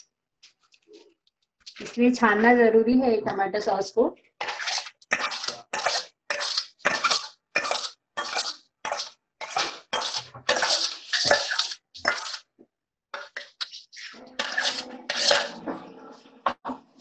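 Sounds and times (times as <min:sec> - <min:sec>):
metal spoon scraping steel pot: 0:04.4 - 0:12.5, 0:13.2 - 0:16.6.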